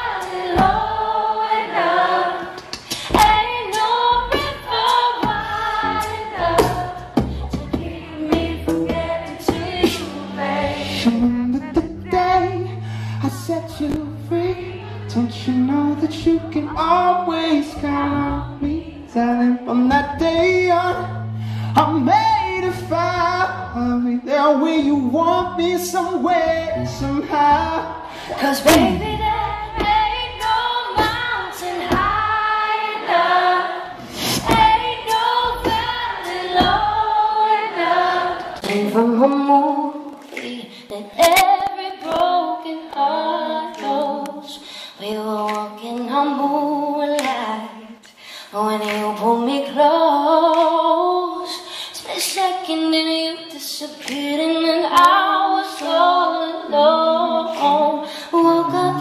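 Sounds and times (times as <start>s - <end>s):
electric bass: 2.9s - 32.6s, 33.9s - 37.3s, 58.4s - 59.0s
woman singing: 3.1s - 12.7s, 28.4s - 33.8s, 34.4s - 39.8s, 40.4s - 59.0s.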